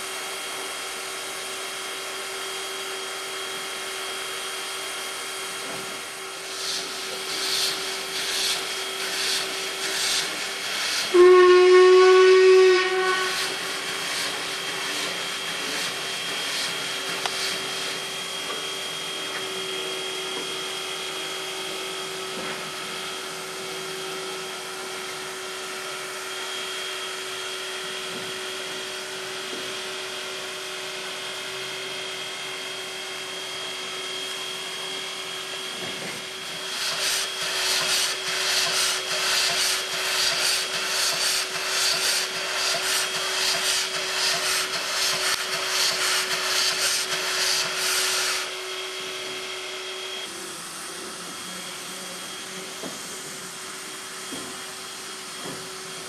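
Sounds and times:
steam locomotive whining hum: 0.0 - 56.0
rhythmic steam hissing: 3.7 - 20.0, 35.3 - 48.8.

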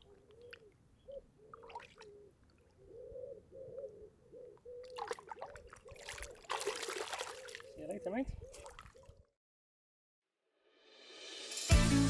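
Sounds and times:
water sloshing and splashing: 1.5 - 2.8, 4.9 - 9.2.

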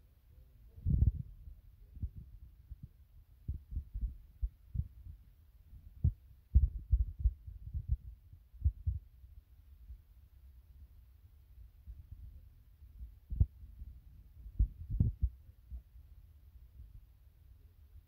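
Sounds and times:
low thumps and rumble: 0.8 - 9.1, 13.0 - 15.8.

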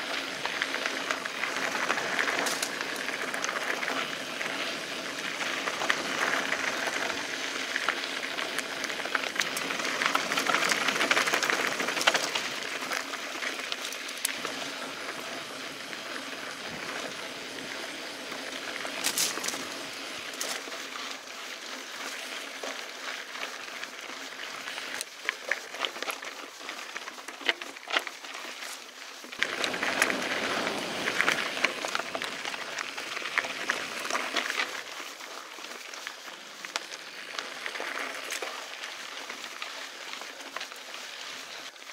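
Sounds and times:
bike clicking and rattling over rocks: 0.0 - 41.9
bike tyres rushing on dirt: 0.0 - 41.9.

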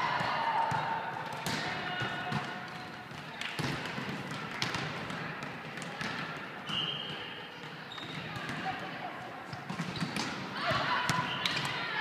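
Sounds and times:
volleyballs smacking in gym: 0.0 - 6.7, 9.4 - 12.0
background murmur: 0.0 - 12.0.

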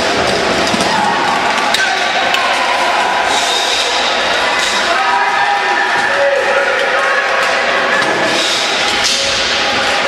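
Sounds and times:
crowd voices talking and calling: 0.0 - 10.0.

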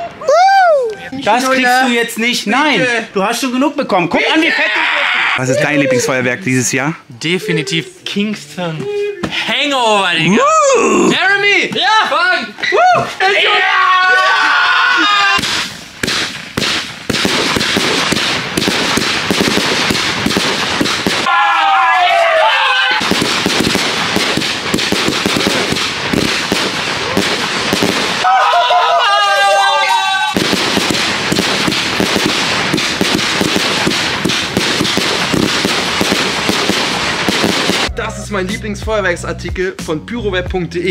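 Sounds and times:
person yelling: 0.1 - 1.1, 4.2 - 6.3, 10.2 - 15.4, 21.3 - 23.0, 28.2 - 30.4
firework crackling: 15.0 - 38.0
firework bangs: 15.1 - 38.0.

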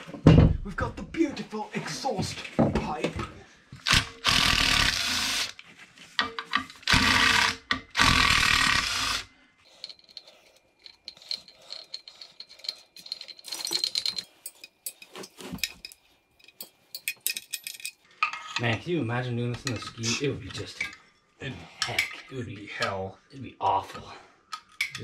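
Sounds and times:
cordless driver running: 3.9 - 5.6, 6.8 - 9.3
clinks of bolts and metal parts: 6.2 - 8.0, 9.7 - 18.8, 19.5 - 21.0, 24.5 - 25.0.

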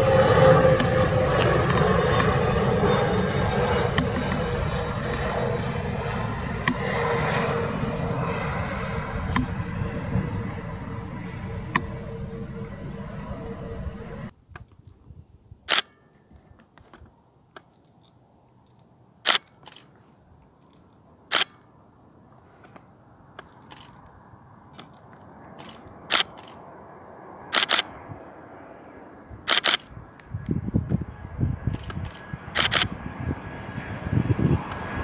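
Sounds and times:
jet airliner noise: 0.0 - 14.3, 22.3 - 35.0
camera shutter clicks: 15.7 - 15.9, 19.3 - 19.8, 21.3 - 21.6, 25.6 - 26.6, 27.5 - 27.9, 29.5 - 29.9, 31.8 - 32.9.

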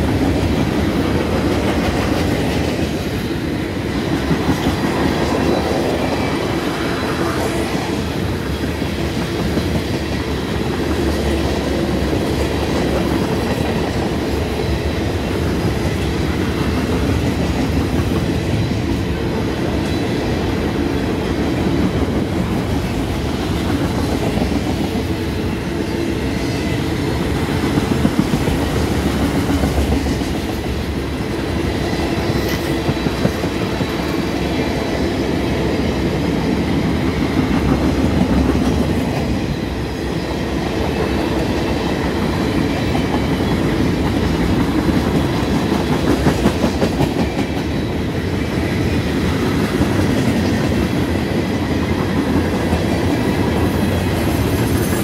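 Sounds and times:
train wheels rumbling on rails: 0.0 - 55.0
rhythmic clickety-clack: 26.6 - 30.7, 40.6 - 55.0.

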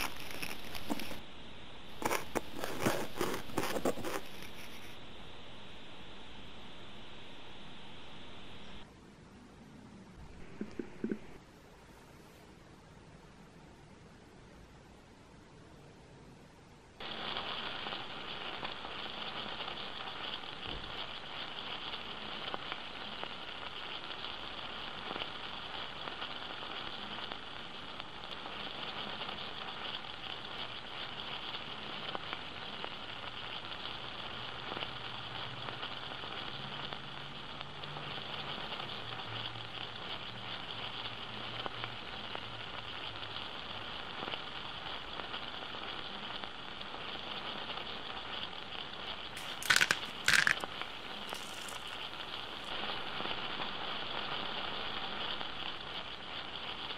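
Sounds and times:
pepper mill grinding: 0.0 - 1.2, 2.0 - 4.9, 49.4 - 52.7
vegetables sizzling in a pot: 0.0 - 1.2, 1.8 - 5.0, 17.0 - 56.9.

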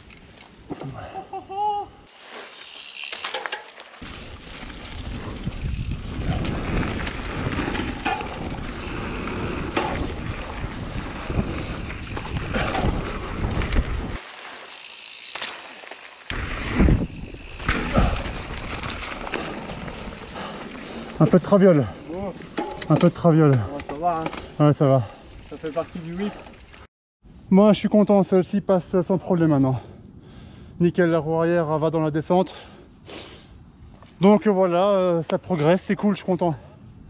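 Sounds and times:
mountain bike tyres and chain rattle: 0.0 - 1.1, 2.1 - 26.9
bike landing thumps: 15.3 - 19.8.

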